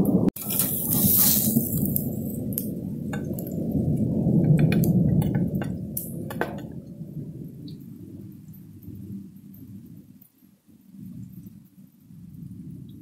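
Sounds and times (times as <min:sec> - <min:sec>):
steady low rumble: 0:00.0 - 0:10.2.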